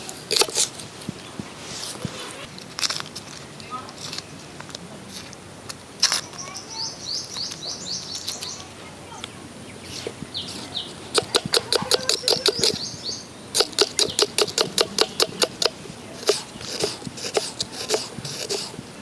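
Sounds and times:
bird chirping: 6.1s - 18.0s.

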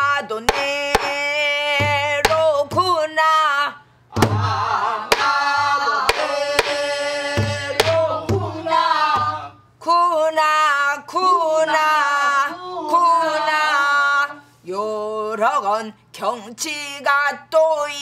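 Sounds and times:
barrel drum strokes: 4.2s - 9.4s.

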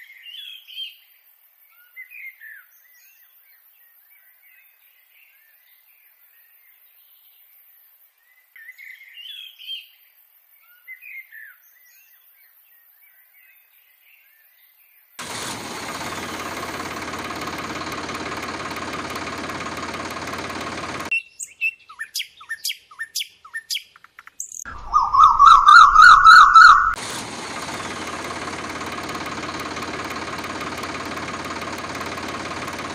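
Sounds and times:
tractor engine idling: 15.2s - 21.1s, 26.9s - 32.9s
short bird chirps: 21.1s - 27.0s
warbling bird trill: 24.7s - 27.0s.

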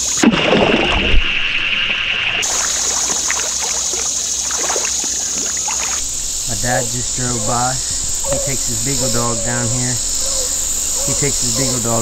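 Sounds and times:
creek water splashing: 0.0s - 12.0s
water trickling and dripping: 0.6s - 9.1s
high insect drone: 2.4s - 12.0s.

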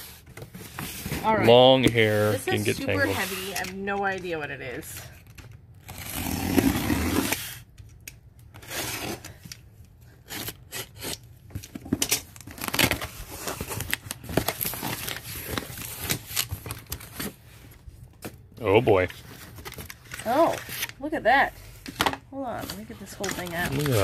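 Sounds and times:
packing tape tearing: 5.2s - 9.6s, 10.2s - 17.4s, 22.6s - 24.0s.

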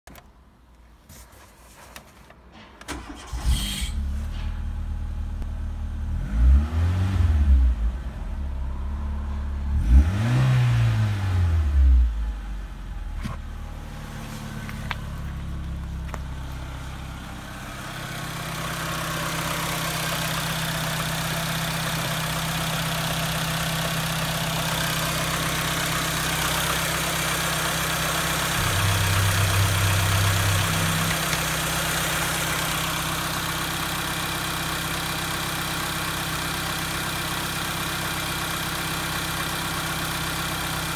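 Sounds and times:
car engine idling: 2.9s - 6.3s, 12.0s - 40.9s
car engine starting and revving: 2.9s - 36.3s.

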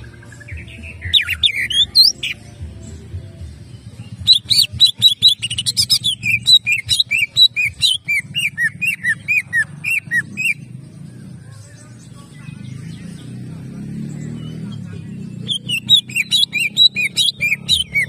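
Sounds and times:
bird singing sharp chirps and whistles: 0.0s - 2.5s, 4.0s - 10.7s, 12.6s - 18.0s.

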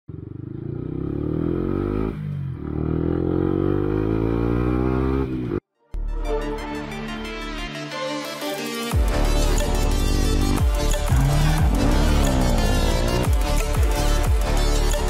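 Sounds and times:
motorcycle engine accelerating: 0.1s - 5.6s, 9.7s - 15.0s
electronic music: 6.0s - 15.0s.

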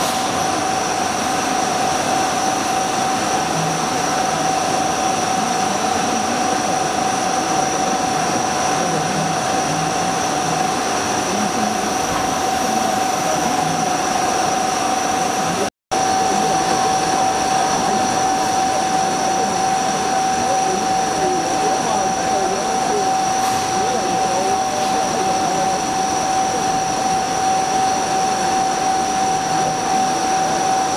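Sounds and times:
coolant spray hiss: 0.0s - 4.6s, 21.2s - 25.9s
machine high whine: 0.0s - 30.9s.

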